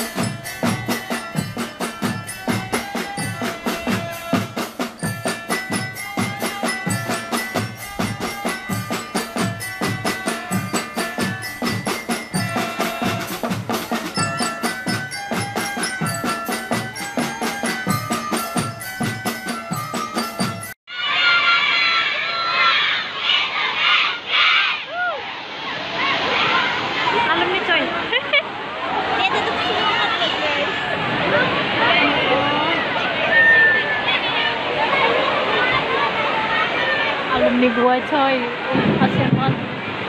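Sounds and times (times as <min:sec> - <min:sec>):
glockenspiel melody: 0:00.0 - 0:20.8
marching drums: 0:00.0 - 0:20.8, 0:38.7 - 0:40.0.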